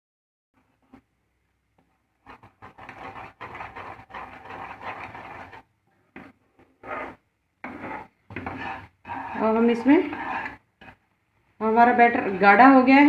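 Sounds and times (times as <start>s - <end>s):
ladle scraping a frying pan: 2.3s - 5.6s, 6.8s - 11.0s.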